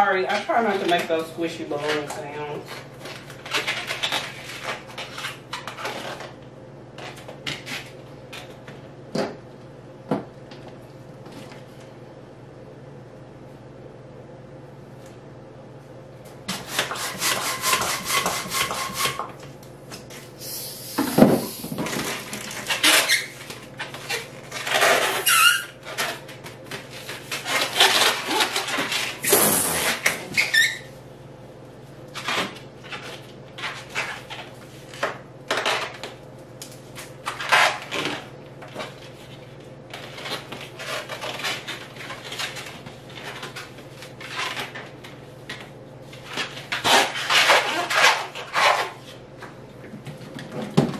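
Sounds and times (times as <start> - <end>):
balloons rubbing and squeaking: 22.5 - 25.8, 27.4 - 30.9, 46.8 - 49.0
steady balloon squeal: 22.6 - 23.4, 24.0 - 25.8, 27.4 - 30.9.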